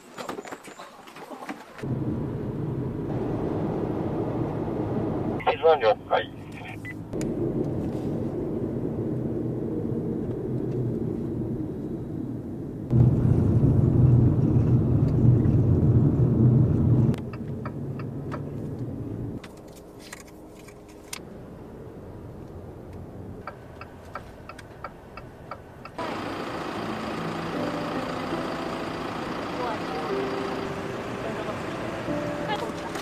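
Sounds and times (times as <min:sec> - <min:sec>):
car cabin road and engine noise: 0:01.6 - 0:33.0.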